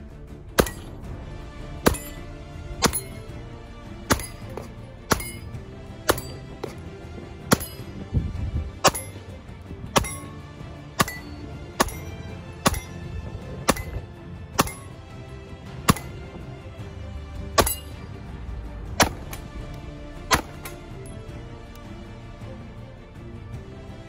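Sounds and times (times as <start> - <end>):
background music: 0.0 - 24.0
metallic clinks from steel targets: 0.6 - 1.0, 1.9 - 3.3, 4.1 - 5.5, 6.1 - 6.8, 7.5 - 8.0, 8.8 - 9.2, 10.0 - 10.4, 11.0 - 13.0, 13.7 - 15.0, 15.9 - 16.4, 17.6 - 18.1, 20.3 - 21.3
pistol shots: 11.0 - 13.0, 19.0 - 19.4, 20.3 - 20.8.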